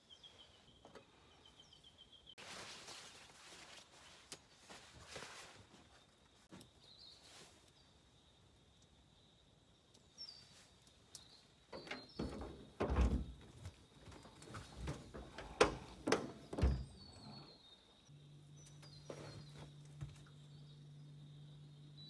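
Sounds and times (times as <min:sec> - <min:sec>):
knocks and thumps: 0:11.8 - 0:17.0
low steady hum: 0:14.7 - 0:22.0.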